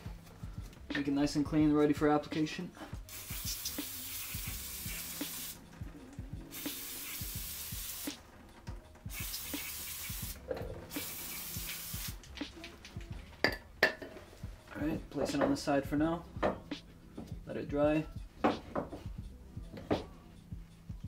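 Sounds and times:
aerosol spraying: 3.1s - 5.6s, 6.4s - 8.2s, 9.1s - 12.4s.

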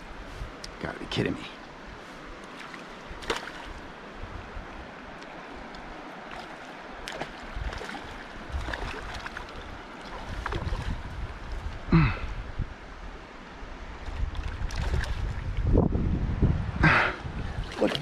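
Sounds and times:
river water rippling over stones: 0.0s - 15.6s, 17.5s - 18.0s
wind buffeting microphone: 3.0s - 5.0s, 7.0s - 13.2s, 13.8s - 18.0s.

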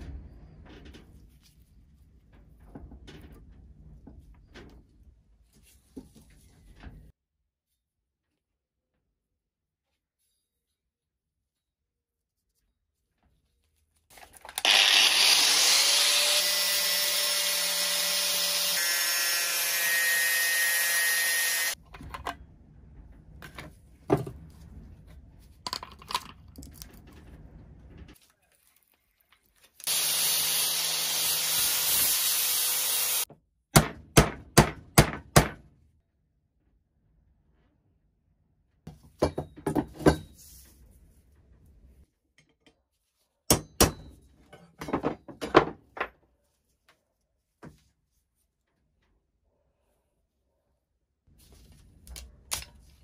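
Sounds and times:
angle grinder grinding steel: 14.6s - 21.8s, 29.8s - 33.3s.

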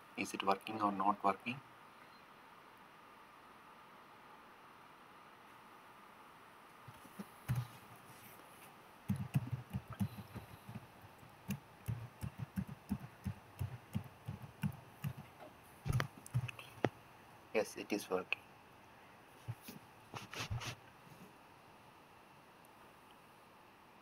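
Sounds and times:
computer keyboard typing: 7.4s - 7.8s, 9.1s - 15.3s, 15.9s - 16.7s.

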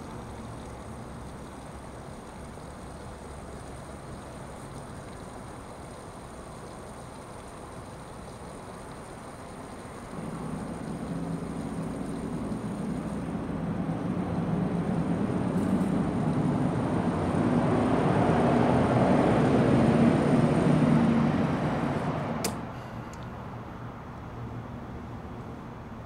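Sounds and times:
road noise: 0.0s - 6.0s, 9.0s - 26.0s
vehicle engine hum: 0.0s - 26.0s
sharp click: 22.4s - 23.3s.

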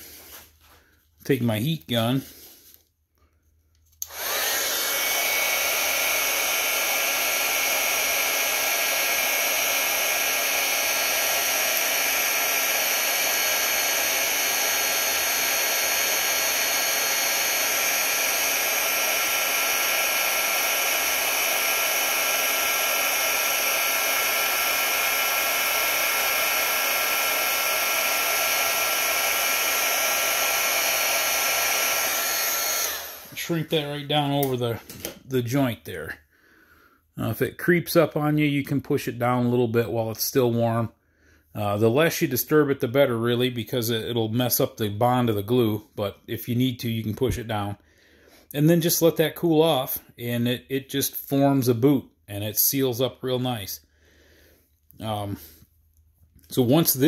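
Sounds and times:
heat gun fan running: 4.0s - 35.2s.

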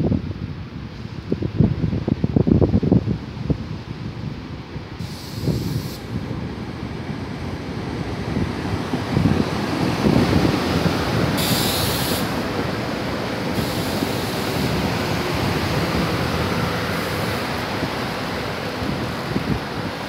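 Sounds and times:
train wheels rumbling on rail: 0.0s - 20.0s
short hiss: 5.0s - 6.2s, 11.4s - 12.4s, 13.6s - 14.8s.

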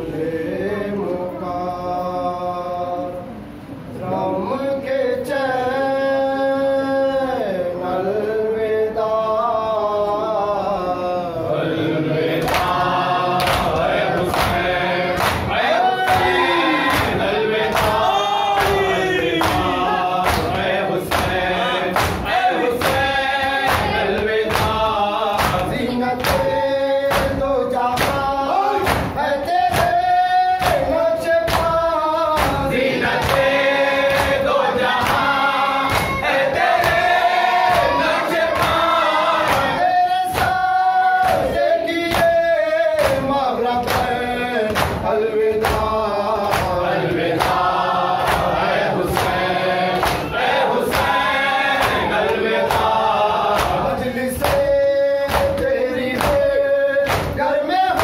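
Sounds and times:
man singing a lament into microphone: 4.1s - 11.6s, 12.4s - 36.0s, 37.6s - 46.9s, 52.6s - 58.0s
group of men chanting: 9.1s - 58.0s.

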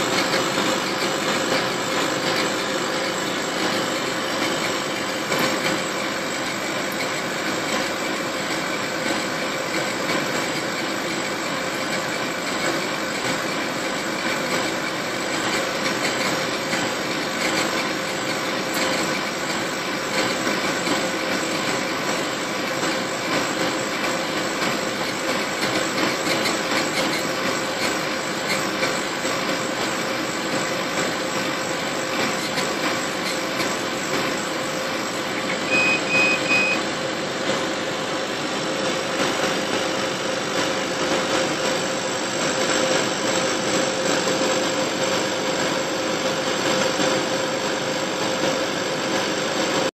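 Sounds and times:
laser engraver whirring: 0.0s - 49.9s.

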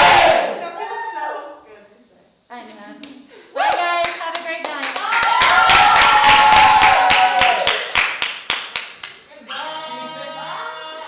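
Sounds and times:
group clapping: 3.0s - 9.3s
high-pitched whoops: 5.1s - 7.8s
group voices: 9.4s - 11.0s.

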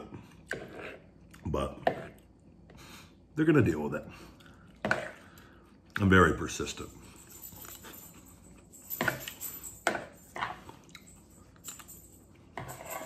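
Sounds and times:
chewing: 7.6s - 8.6s, 10.3s - 11.9s.

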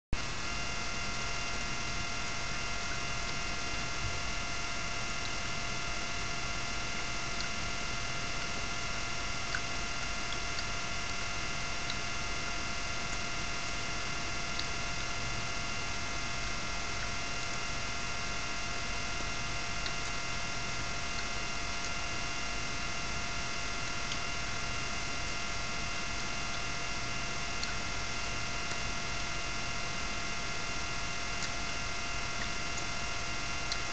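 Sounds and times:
electrical hum and whine: 0.2s - 33.9s
faint ticks: 27.6s - 27.8s.

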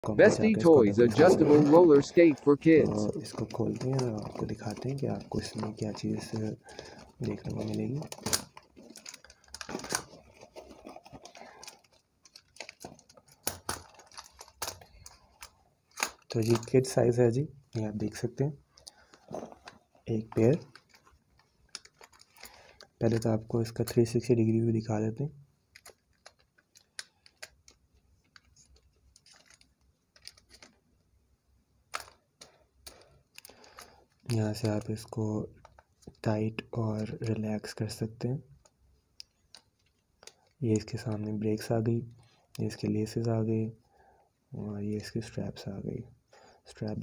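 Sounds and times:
plastic bag rustling: 0.1s - 16.9s, 18.9s - 22.8s
plastic roller skate parts clicking: 7.0s - 16.9s, 20.4s - 23.2s, 25.7s - 30.8s, 31.9s - 36.2s.

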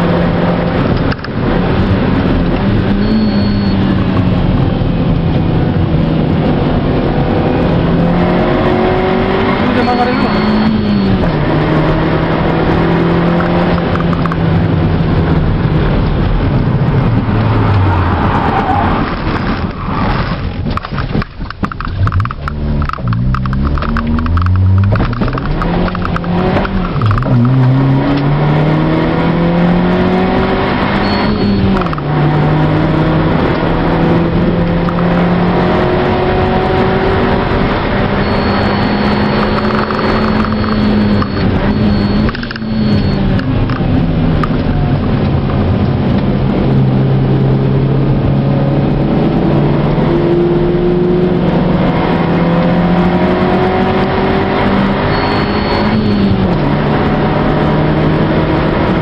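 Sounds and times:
car engine accelerating: 0.0s - 59.0s.

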